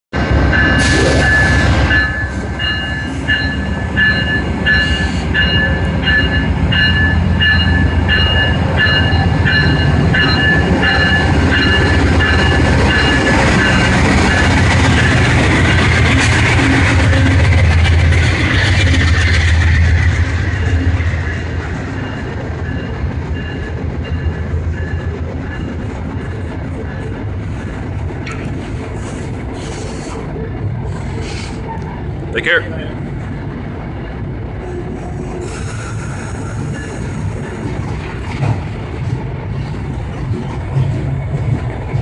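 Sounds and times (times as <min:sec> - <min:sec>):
locomotive engine rumble: 0:00.2 - 0:42.0
passenger coaches rolling past: 0:00.2 - 0:42.0
locomotive bell ringing: 0:00.5 - 0:16.1, 0:20.4 - 0:27.7.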